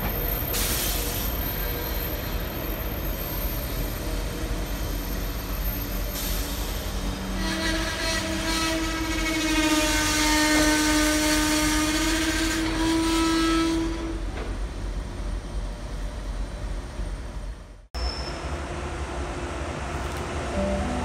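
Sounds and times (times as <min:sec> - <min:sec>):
train wagons rumbling and clattering: 0:00.0 - 0:21.0
long steady pitched tone: 0:20.5 - 0:21.0.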